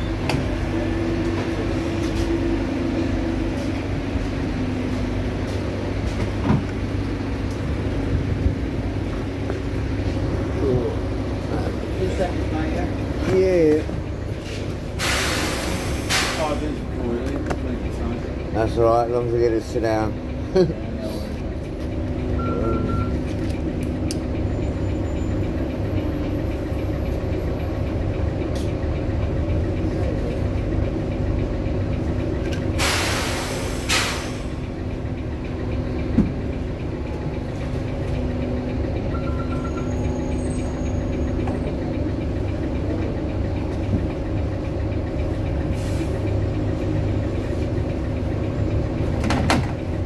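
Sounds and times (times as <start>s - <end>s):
bus engine idling: 0.0s - 50.0s
air hiss: 15.0s - 16.4s, 32.8s - 34.4s
short electronic beep: 22.4s - 23.2s, 39.1s - 40.3s.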